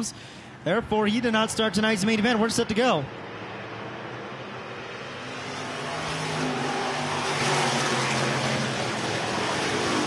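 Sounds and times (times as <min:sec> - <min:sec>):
stock car engines accelerating: 0:03.1 - 0:10.0.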